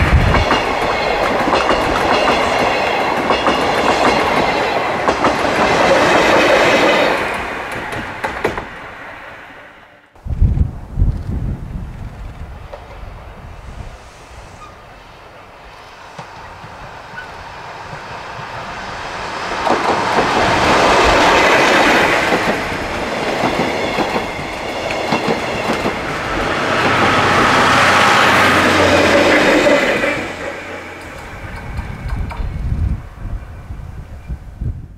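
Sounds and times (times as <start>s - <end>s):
wheels clacking over rail joints: 0.0s - 8.9s, 16.1s - 32.5s
passenger train passing: 0.0s - 34.9s.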